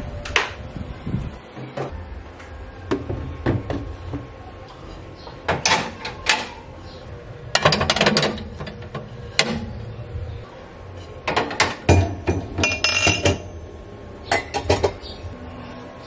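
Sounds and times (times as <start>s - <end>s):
ceramic dishes clattering: 11.1s - 13.6s, 14.3s - 15.2s.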